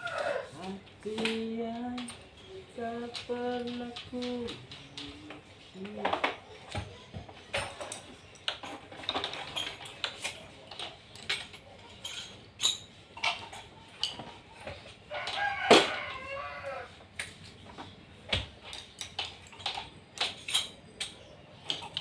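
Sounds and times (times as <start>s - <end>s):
rooster crowing: 0.0s - 0.7s, 15.1s - 17.0s.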